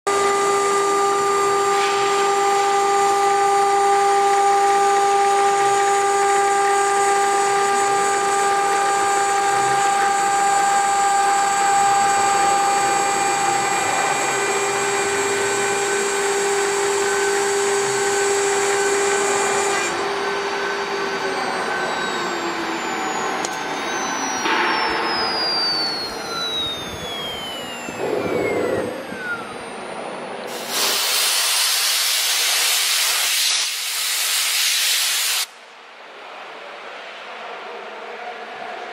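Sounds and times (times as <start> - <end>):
cnc spindle whine: 0.1 - 34.2
metal cutting hiss: 30.5 - 35.5.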